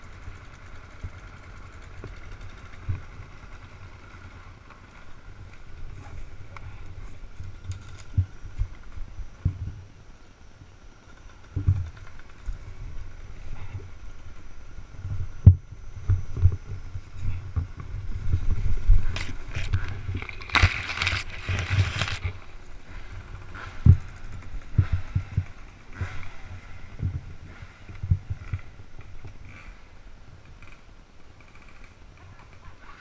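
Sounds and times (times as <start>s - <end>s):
low thumps and scuffs on camera: 15.0s - 22.4s.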